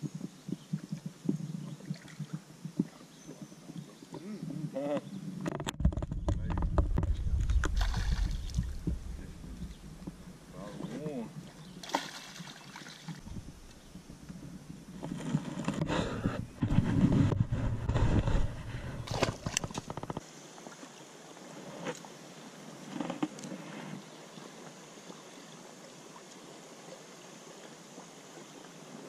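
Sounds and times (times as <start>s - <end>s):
water splashing: 6.5s - 13.8s.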